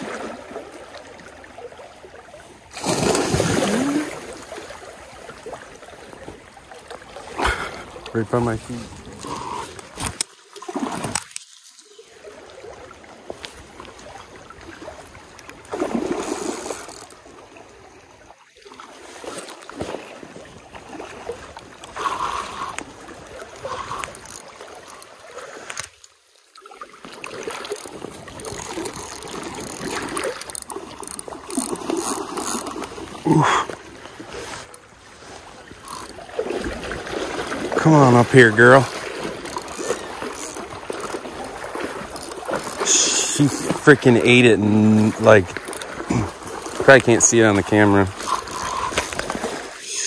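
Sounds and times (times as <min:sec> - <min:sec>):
shallow stream water running: 0:00.0 - 0:50.0
spinning reel: 0:23.6 - 0:24.5, 0:27.8 - 0:32.7, 0:35.8 - 0:36.2, 0:38.9 - 0:41.2, 0:48.2 - 0:49.3.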